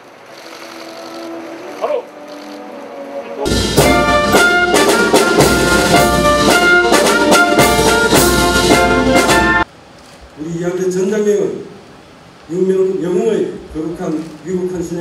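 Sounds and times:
ceremonial brass band music: 0:00.3 - 0:09.7
drum and cymbal hits: 0:03.5 - 0:09.7.

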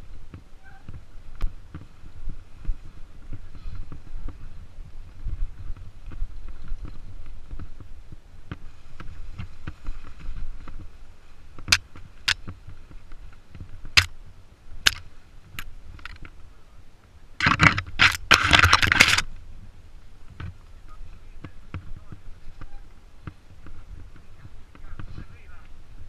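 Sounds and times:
bike tyres and frame rumbling: 0:00.0 - 0:26.0
grass brushing against bike: 0:00.0 - 0:26.0
chain and frame clicks and knocks: 0:14.8 - 0:16.3, 0:17.4 - 0:19.3.

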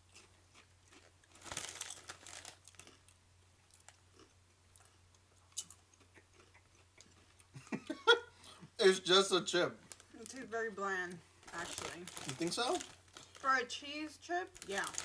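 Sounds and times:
potato chips crunching: 0:00.1 - 0:07.3, 0:11.5 - 0:13.6, 0:14.5 - 0:15.0.

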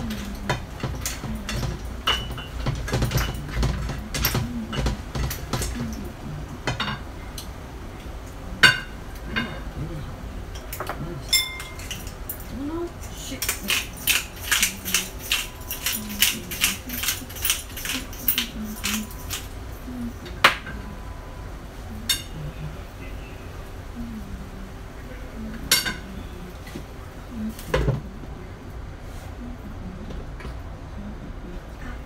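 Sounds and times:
utensils clinking on frying pan: 0:00.0 - 0:07.6, 0:10.6 - 0:19.6, 0:22.0 - 0:22.4, 0:25.7 - 0:26.2.

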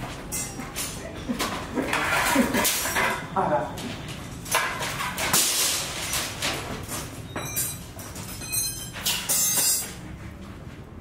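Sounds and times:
steel bars clattering on concrete: 0:00.3 - 0:03.3, 0:07.4 - 0:10.0.

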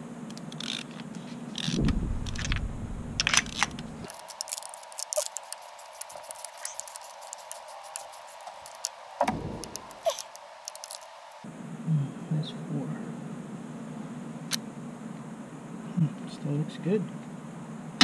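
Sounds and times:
low rumble: 0:01.7 - 0:04.1.

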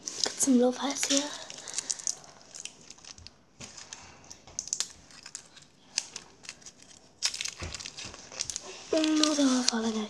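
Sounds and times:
paper wrapper crinkling: 0:00.0 - 0:10.0.

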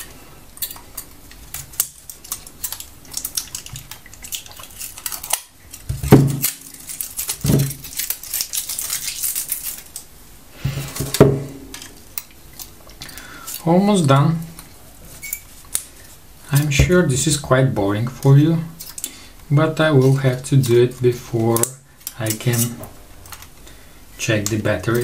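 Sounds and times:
pliers clicking and snipping metal: 0:00.6 - 0:10.1, 0:20.0 - 0:23.5
louder knocks: 0:11.2 - 0:11.6.

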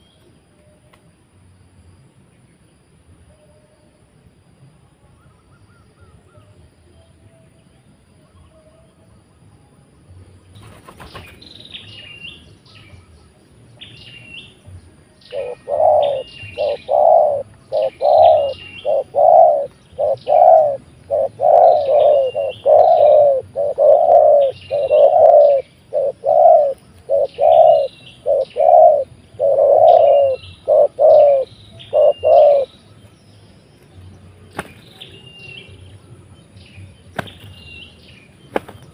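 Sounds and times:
doves cooing: 0:15.3 - 0:32.7
higher chirps: 0:15.3 - 0:32.7.

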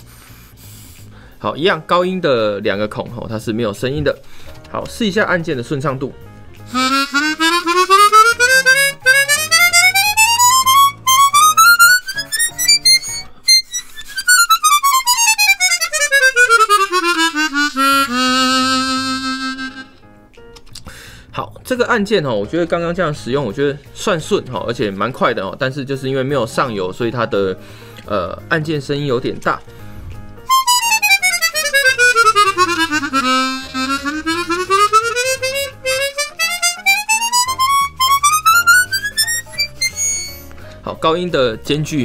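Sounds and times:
harmonica playing: 0:06.6 - 0:20.3, 0:30.4 - 0:40.6.

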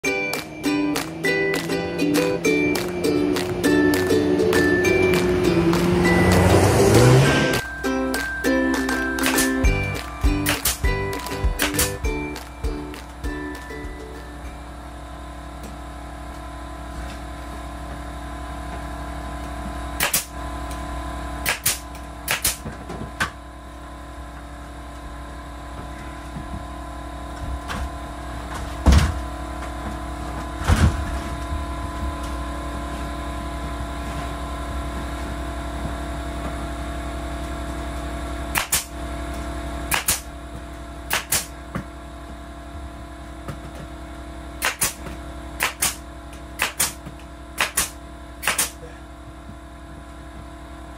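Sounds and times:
steady machine drone: 0:00.0 - 0:50.9
nail gun shots into wood: 0:20.0 - 0:20.3, 0:21.4 - 0:22.7, 0:38.5 - 0:38.9, 0:39.9 - 0:40.3, 0:41.1 - 0:41.5, 0:44.6 - 0:46.0, 0:46.6 - 0:47.0, 0:47.6 - 0:48.8.

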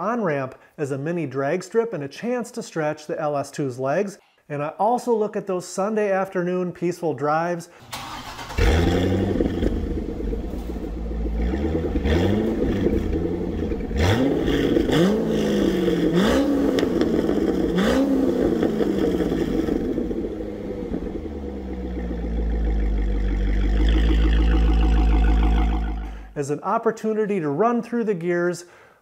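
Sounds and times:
car engine revving and idling: 0:08.2 - 0:26.4.

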